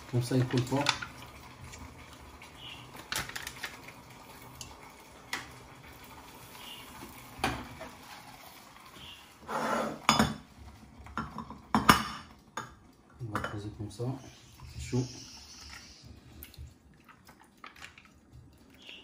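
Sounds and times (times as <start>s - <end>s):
metal bowl and utensils clinking: 0.1s - 1.2s, 11.1s - 14.1s.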